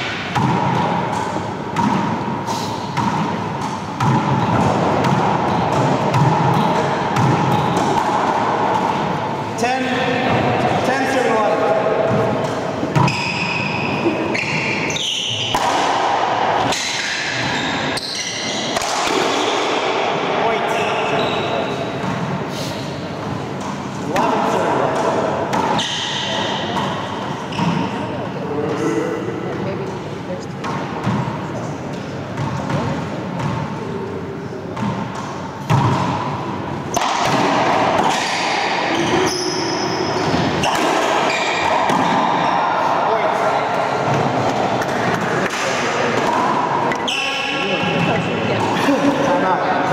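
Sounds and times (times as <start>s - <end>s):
ball smacking racquets and walls: 0.0s - 9.3s, 9.9s - 28.0s, 30.6s - 33.9s, 34.7s - 48.8s
sneaker squeaks on wooden floor: 12.9s - 15.6s, 16.7s - 18.8s, 20.8s - 21.9s, 25.8s - 28.1s, 38.1s - 42.3s, 46.9s - 48.3s.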